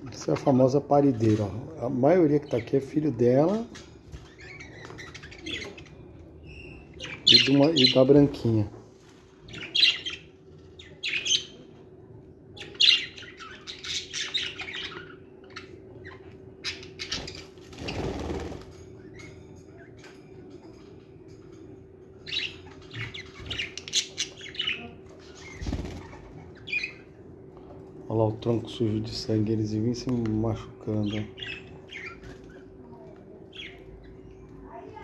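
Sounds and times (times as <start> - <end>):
budgerigars chirping: 3.5 - 8.3, 12.6 - 18.5, 22.3 - 27.1
wings flapping: 17.2 - 18.8, 25.5 - 26.4.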